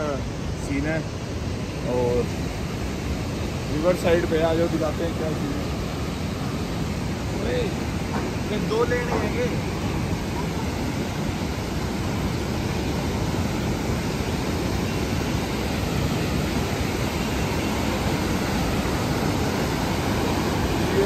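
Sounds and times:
river rushing over rocks: 0:00.0 - 0:21.0.

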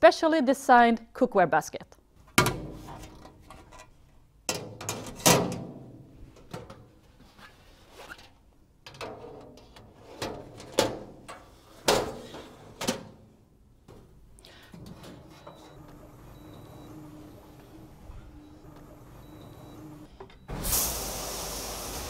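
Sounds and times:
metal pans clanking and scraping: 0:08.9 - 0:13.0.

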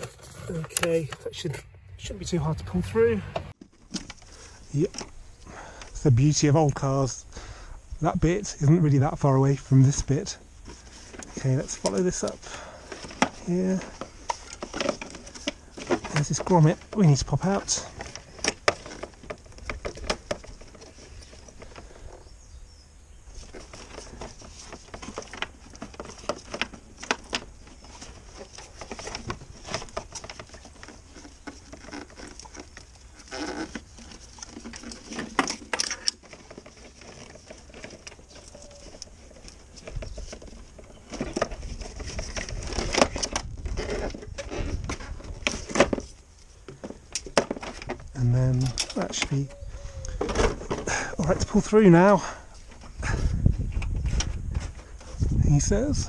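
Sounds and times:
low rumble: 0:01.1 - 0:03.6
gloved hands clicking and scraping: 0:10.6 - 0:22.2, 0:23.2 - 0:49.4.

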